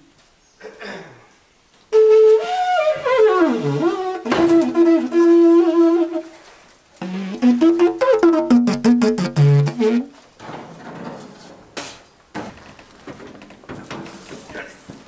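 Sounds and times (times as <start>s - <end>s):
wind instrument melody: 1.9s - 10.1s
knocks and clatter: 8.0s - 15.0s.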